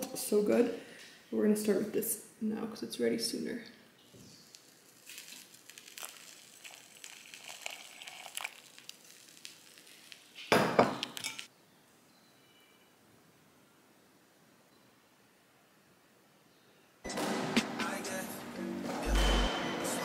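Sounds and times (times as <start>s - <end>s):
kitchenware clattering: 10.5s - 11.5s.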